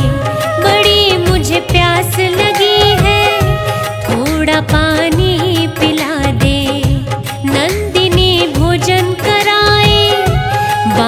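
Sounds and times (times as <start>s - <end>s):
devotional song melody: 0.0s - 11.0s
steady drum beat: 0.0s - 11.0s.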